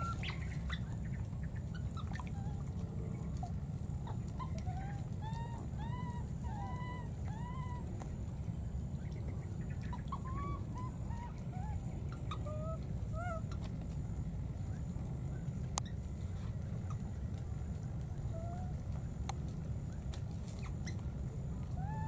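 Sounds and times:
steady low rumble: 0.0s - 22.0s
baby monkey crying: 4.4s - 7.9s.

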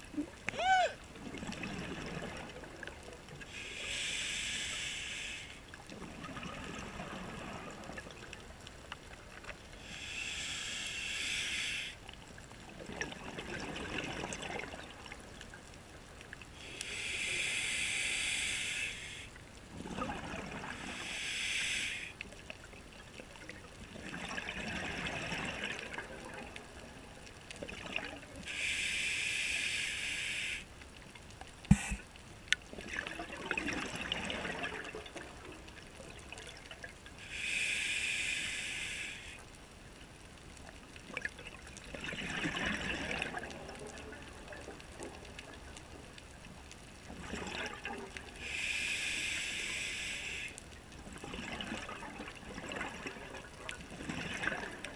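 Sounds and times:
diver inhaling through regulator: 3.5s - 5.6s, 9.8s - 12.0s, 16.6s - 19.4s, 20.8s - 22.2s, 28.4s - 30.7s, 31.7s - 32.1s, 37.2s - 39.4s, 48.4s - 50.6s
exhaled bubbles bursting: 19.8s - 20.9s, 41.9s - 43.5s, 47.2s - 48.1s.

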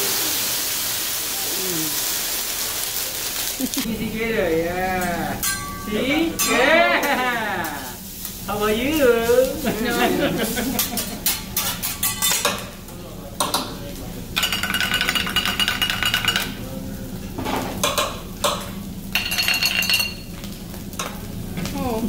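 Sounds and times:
metal spatula scraping griddle: 8.9s - 12.4s.

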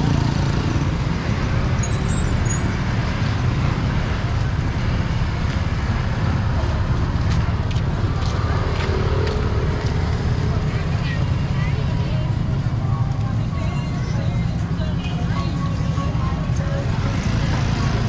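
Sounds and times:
street traffic engine rumble: 0.0s - 18.0s.

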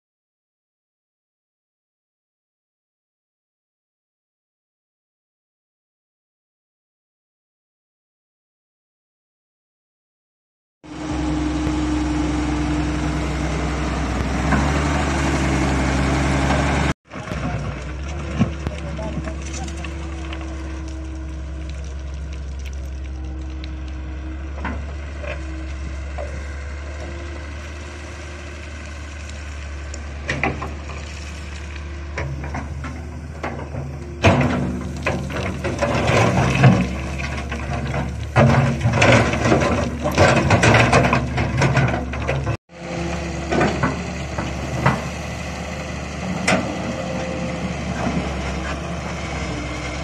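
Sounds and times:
excavator diesel engine running: 10.9s - 50.0s.

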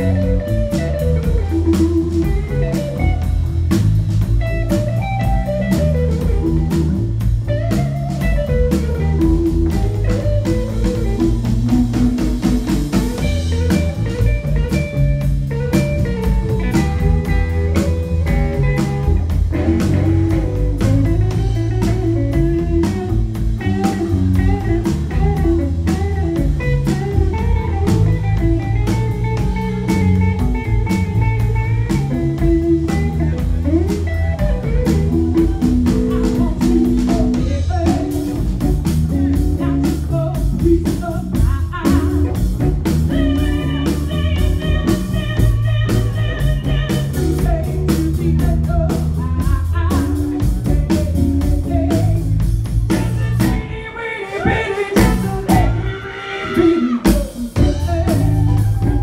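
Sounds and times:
bass: 0.0s - 59.0s
drum kit: 0.0s - 59.0s
guitar: 0.0s - 59.0s
woman singing: 39.1s - 42.4s, 43.1s - 59.0s.

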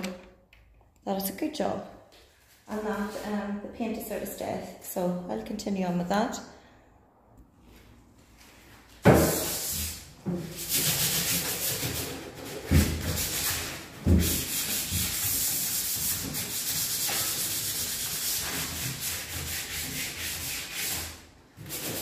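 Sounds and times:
hand sanding wood: 9.1s - 22.0s.

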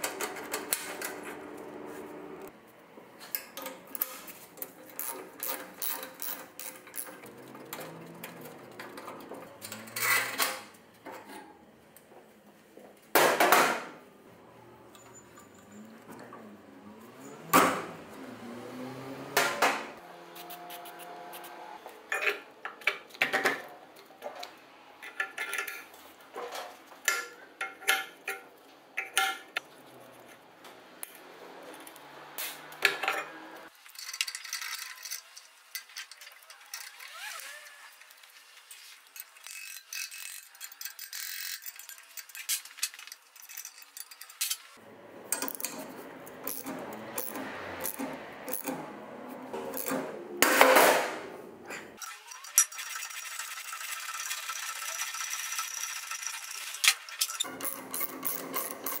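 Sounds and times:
metal tools clinking and knocking: 14.9s - 16.4s, 39.2s - 44.7s, 56.2s - 59.0s.

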